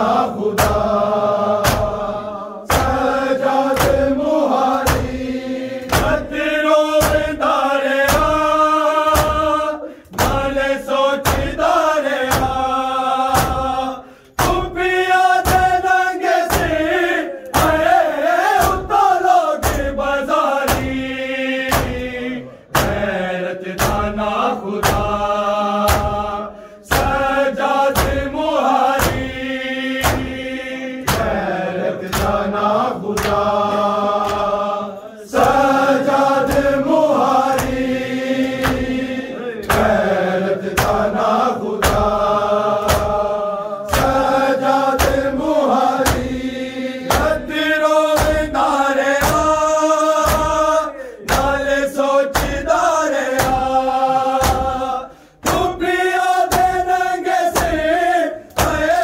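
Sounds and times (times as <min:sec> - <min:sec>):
men chanting in unison: 0:00.0 - 0:59.0
hands striking chests: 0:21.7 - 0:23.1, 0:30.0 - 0:30.4, 0:31.0 - 0:31.4, 0:32.0 - 0:32.4, 0:42.8 - 0:43.2.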